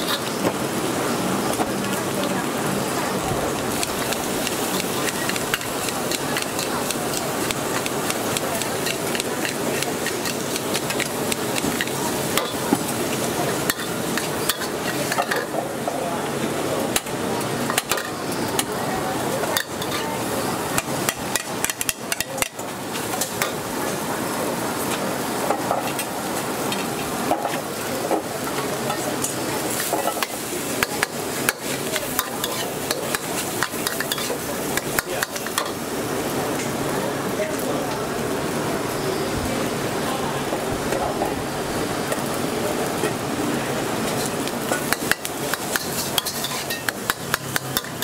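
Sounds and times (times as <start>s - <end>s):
spatula scraping a wok: 0.0s - 0.4s, 3.7s - 12.7s, 29.2s - 35.8s, 44.1s - 48.0s
food sizzling: 0.0s - 48.0s.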